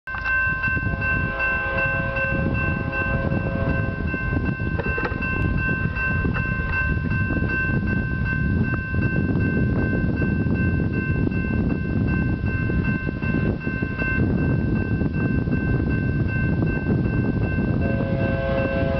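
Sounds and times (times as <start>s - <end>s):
railroad crossing bell ringing: 0.1s - 18.9s
faint lower tones: 0.2s - 4.5s
low rumbling noise: 0.6s - 18.9s.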